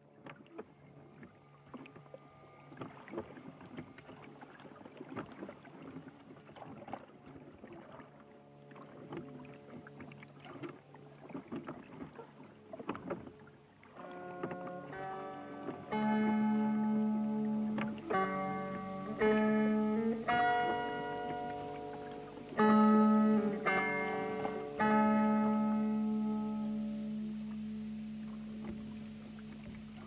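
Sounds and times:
low steady drone: 0.0s - 4.6s, 13.3s - 30.0s
water splashing and knocking: 2.8s - 16.1s, 17.4s - 19.4s.

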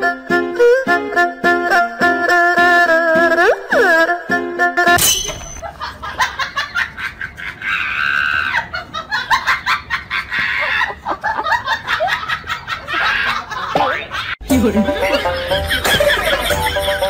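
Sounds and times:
person laughing with squeals: 7.0s - 14.4s.

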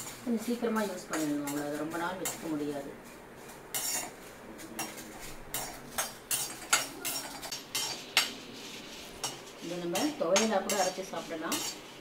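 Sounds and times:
ladle scraping metal pan: 3.4s - 4.2s, 4.8s - 12.0s.

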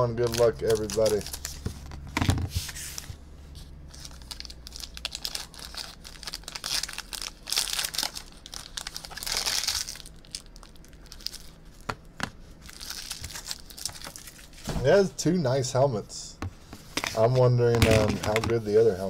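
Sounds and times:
foil wrapper crinkling and tearing: 0.0s - 2.0s, 3.9s - 11.9s, 12.6s - 14.6s.

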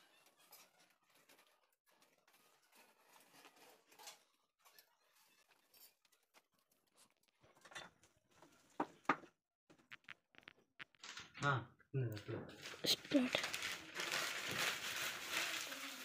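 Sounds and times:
paper rustling and scratching: 0.0s - 7.4s, 12.6s - 16.0s
paper crinkling: 12.5s - 16.0s.

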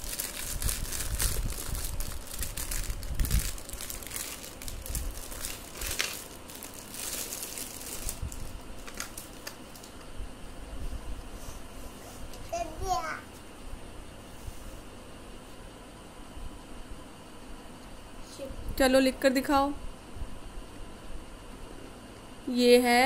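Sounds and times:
plastic film crinkling: 0.0s - 10.1s.

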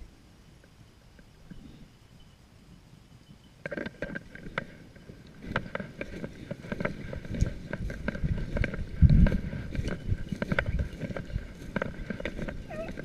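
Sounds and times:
wind buffeting microphone: 4.2s - 13.0s
footsteps crunching through snow: 5.4s - 13.0s.

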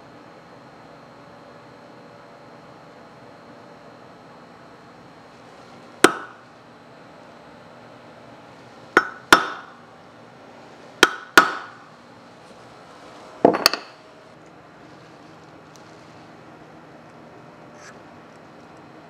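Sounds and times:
hammer striking steel punch: 6.0s - 6.4s, 9.0s - 9.7s, 11.0s - 11.8s.

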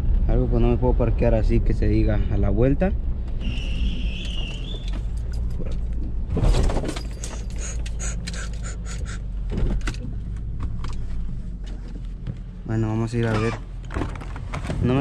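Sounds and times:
car engine running: 0.0s - 15.0s
metallic clicks and jingles: 4.8s - 6.0s, 6.9s - 9.0s.

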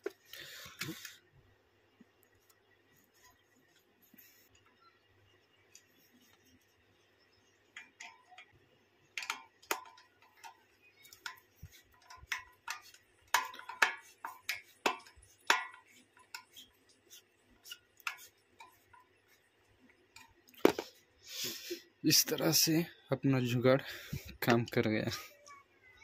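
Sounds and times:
metallic clicks and taps: 7.7s - 19.3s.

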